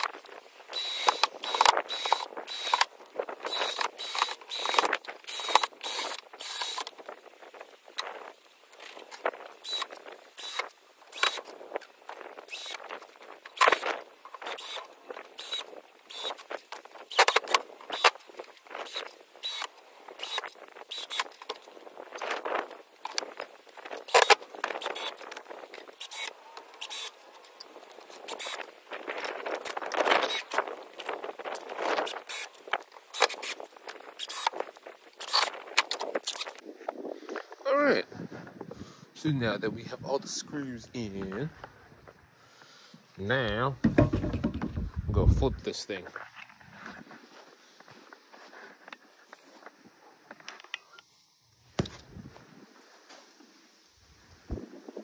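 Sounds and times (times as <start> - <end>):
cordless drill whining in bursts: 0.7 - 2.9, 3.5 - 6.9, 9.6 - 11.4, 12.4 - 12.8, 14.4 - 16.4, 18.8 - 21.3, 26.0 - 27.2, 28.3 - 28.6.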